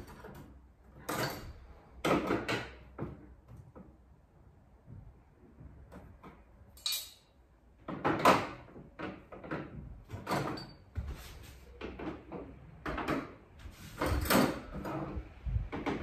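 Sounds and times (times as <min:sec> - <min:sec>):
metal cutlery clinking: 0:06.8 - 0:07.3.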